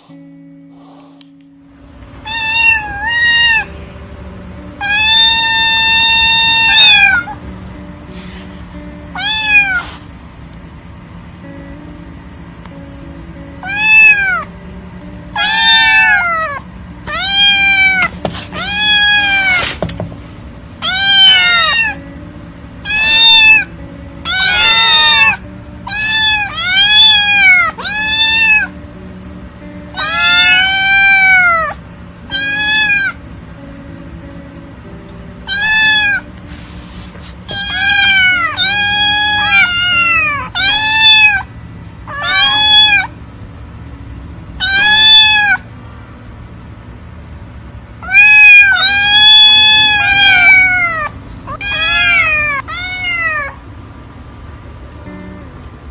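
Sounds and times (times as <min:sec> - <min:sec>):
kittens meowing: 0:02.2 - 0:03.8, 0:04.8 - 0:07.4, 0:09.1 - 0:10.0, 0:13.6 - 0:14.5, 0:15.3 - 0:19.8, 0:20.8 - 0:22.0, 0:22.8 - 0:28.8, 0:29.9 - 0:33.2, 0:35.4 - 0:36.3, 0:37.4 - 0:41.5, 0:42.1 - 0:43.2, 0:44.6 - 0:45.7, 0:48.0 - 0:53.6.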